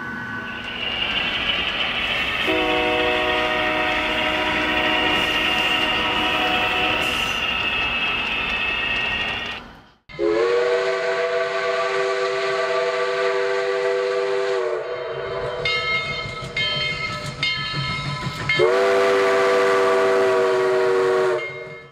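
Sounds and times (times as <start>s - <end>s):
short high train whistle toots: 2.4s - 7.4s, 10.1s - 15.5s, 18.6s - 21.7s
train whistle chord blast: 2.4s - 7.4s, 10.1s - 15.6s, 18.6s - 21.7s.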